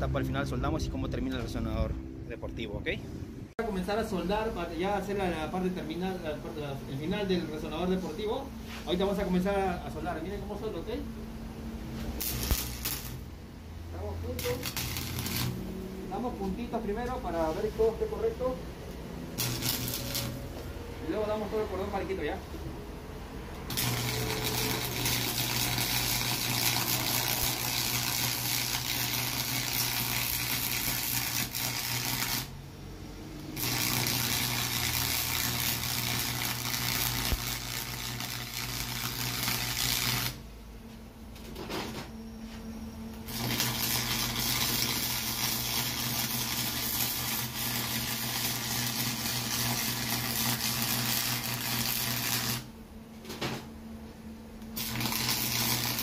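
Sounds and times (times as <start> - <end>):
low hum: 0.0 - 3.7, 9.2 - 17.0, 17.7 - 27.2
welding arc hissing: 12.0 - 13.3, 14.2 - 16.7, 19.3 - 20.6, 23.7 - 32.6, 33.5 - 40.4, 43.3 - 52.7, 54.8 - 56.0.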